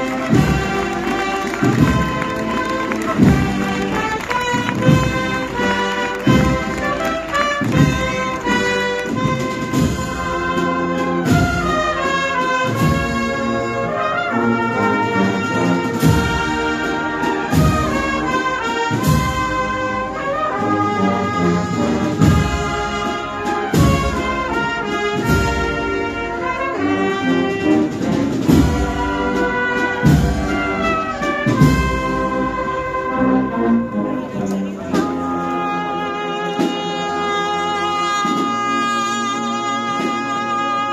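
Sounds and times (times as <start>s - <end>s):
heavy drum beat: 0.0s - 13.4s, 21.7s - 26.3s, 27.2s - 32.9s
brass melody: 0.0s - 40.9s.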